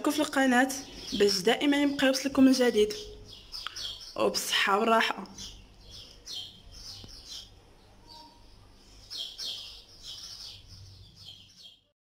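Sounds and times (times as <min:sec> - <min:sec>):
small bird chirping: 0:00.0 - 0:12.0.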